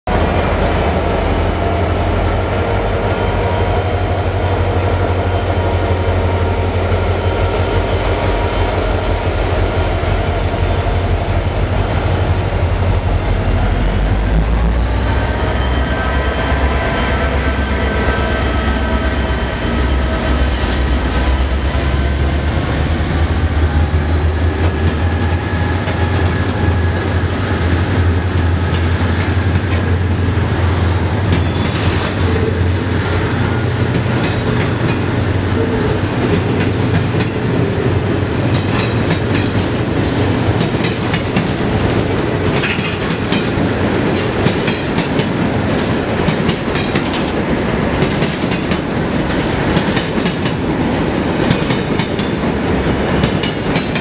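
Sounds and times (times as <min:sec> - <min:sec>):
deep locomotive engine rumble: 0:00.0 - 0:54.0.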